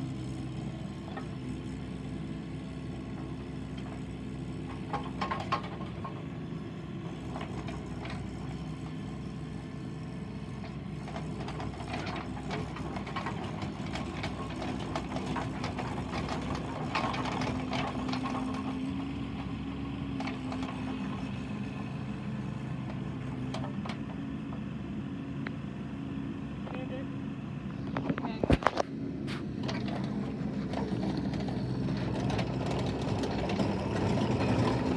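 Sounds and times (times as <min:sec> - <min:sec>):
diesel engine running: 0:00.0 - 0:34.9
clanks and gravel crunches: 0:10.5 - 0:21.4, 0:27.7 - 0:34.9.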